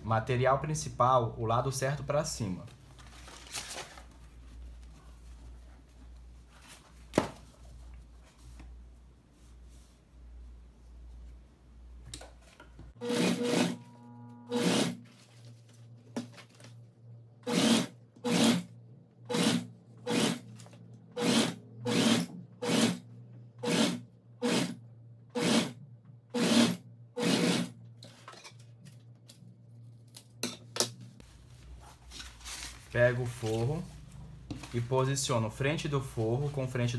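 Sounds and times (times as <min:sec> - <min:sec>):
low motor hum: 0:12.8 - 0:17.4
sewing machine stitching: 0:13.0 - 0:15.0, 0:17.4 - 0:18.7, 0:19.3 - 0:20.4, 0:21.2 - 0:23.0, 0:23.6 - 0:25.8, 0:26.4 - 0:27.7.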